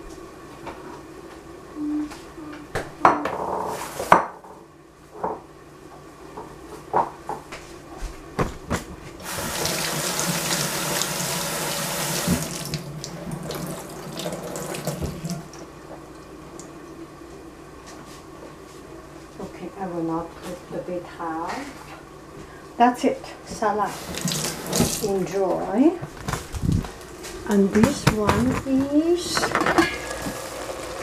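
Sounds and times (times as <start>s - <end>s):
tap running into sink: 12.0s - 12.8s, 24.1s - 25.1s
kitchenware clinking: 27.7s - 30.4s.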